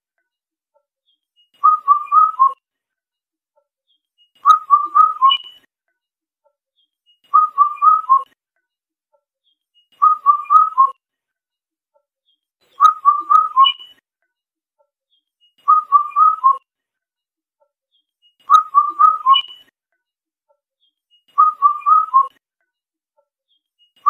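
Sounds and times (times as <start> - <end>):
cuckoo whistled song: 1.1 - 2.6, 4.0 - 5.7, 6.8 - 8.4, 9.5 - 11.0, 12.6 - 14.0, 15.2 - 16.7, 18.0 - 19.7, 20.8 - 22.4.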